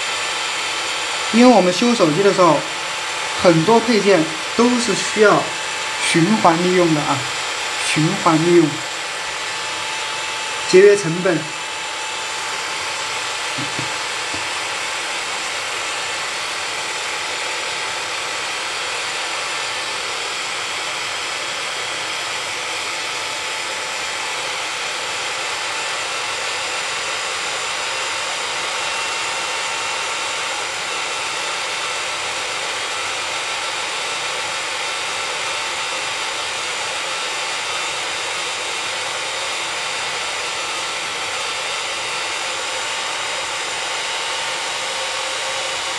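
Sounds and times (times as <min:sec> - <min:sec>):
hot air gun hissing: 0:01.2 - 0:14.8.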